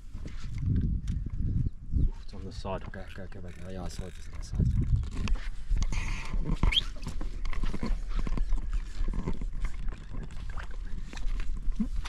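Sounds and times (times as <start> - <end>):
brief squeak: 5.9 - 7.0.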